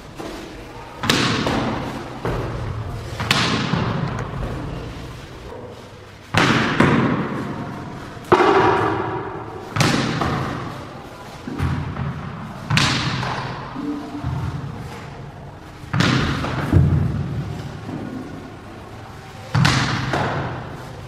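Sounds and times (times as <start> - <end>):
bat striking tennis ball: 8.3 - 10.4.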